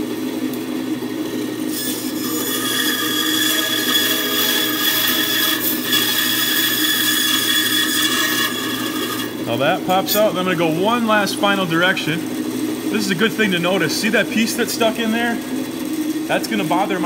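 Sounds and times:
bandsaw running hum: 0.0 - 17.0
bandsaw blade whining through wood: 1.3 - 12.2.

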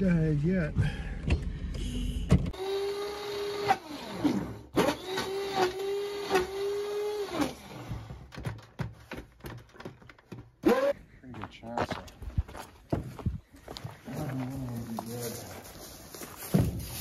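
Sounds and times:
hand blender whirring: 2.6 - 7.9.

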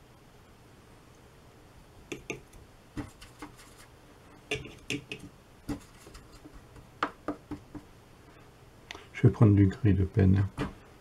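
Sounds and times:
brush tapping paint box: 2.1 - 7.9.

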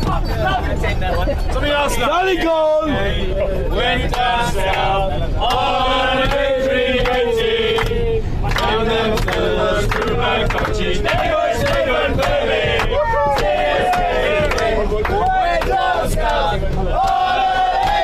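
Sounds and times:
men singing and chanting: 0.0 - 18.0
sharp claps: 7.0 - 18.0.

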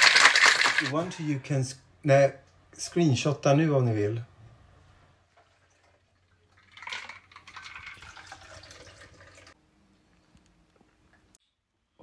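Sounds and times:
cocktail pouring into glass: 5.5 - 9.6.

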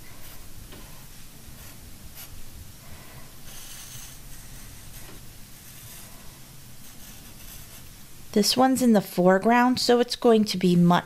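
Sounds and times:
pencil scratching on paper: 3.5 - 7.9.

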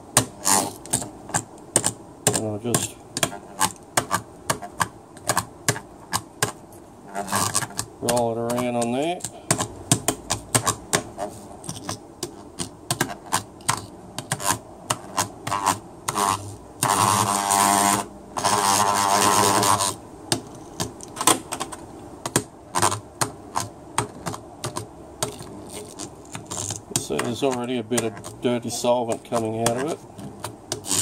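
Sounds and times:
demagnetizer buzzing: 15.5 - 20.0.

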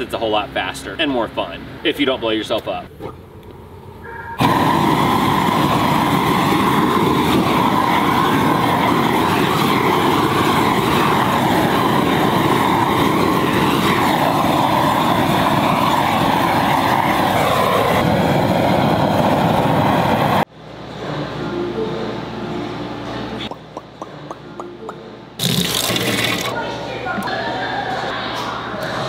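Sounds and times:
weed-burner torch flame rushing: 4.4 - 20.5, 25.4 - 26.6.

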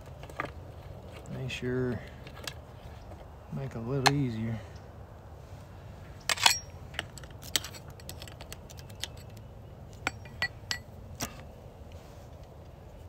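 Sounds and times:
hand tool clinking: 6.3 - 9.3, 10.0 - 11.4.

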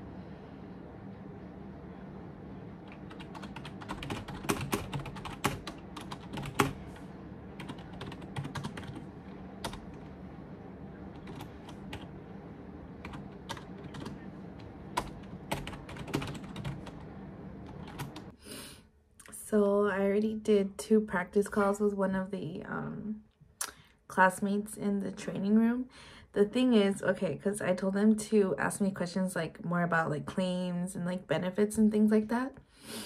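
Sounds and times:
computer keyboard typing: 2.8 - 7.0, 7.6 - 10.1, 11.1 - 12.1, 13.0 - 18.3.

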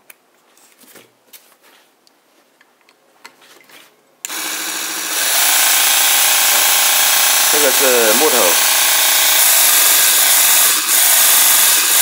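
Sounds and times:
belt sander motor running: 4.3 - 12.0.

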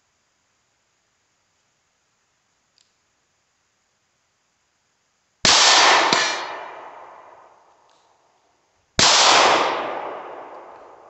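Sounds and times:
bullet striking steel target: 5.5 - 7.2
handgun shots echoing: 5.5 - 7.3, 9.0 - 11.0.

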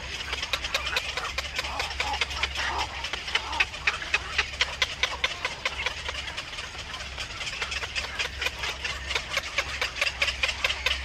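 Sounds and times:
heron nestlings clicking calls: 0.0 - 6.2
steady low hum: 0.0 - 11.0.

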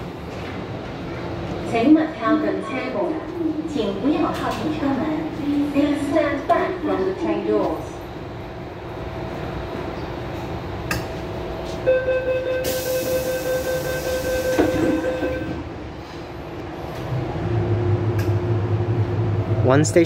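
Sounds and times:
train doors shutting: 2.5 - 8.0, 9.3 - 19.6
door-closing warning tone: 11.8 - 15.7.

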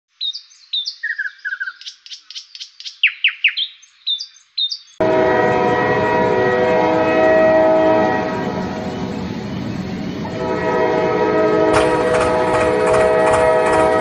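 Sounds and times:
birds chirping and trilling: 0.1 - 5.0
train horn: 5.0 - 14.0.

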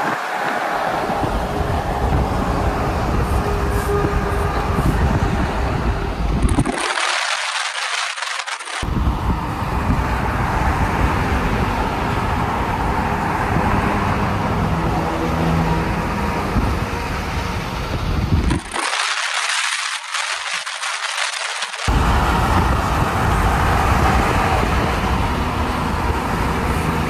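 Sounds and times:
rush of passing vehicles: 0.0 - 6.6, 8.8 - 18.6, 21.8 - 27.0.

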